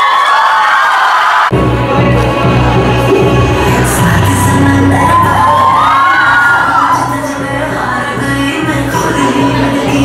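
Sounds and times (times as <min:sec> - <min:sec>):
crowd cheering and whooping: 0:00.0 - 0:01.8, 0:04.6 - 0:07.4
music with heavy bass beat: 0:01.5 - 0:10.0.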